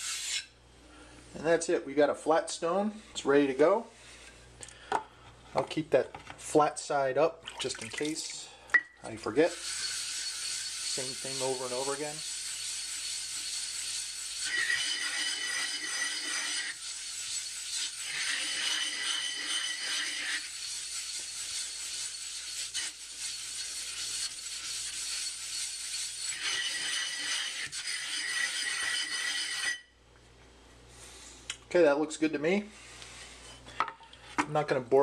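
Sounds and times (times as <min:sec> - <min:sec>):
whetstone grinding on plate: 0:09.6 - 0:29.9.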